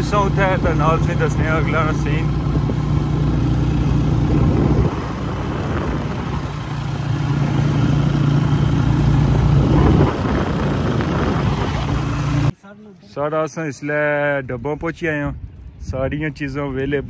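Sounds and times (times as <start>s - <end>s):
vehicle engine running: 0.0s - 12.5s
road and wind noise: 0.0s - 12.6s, 13.2s - 17.0s.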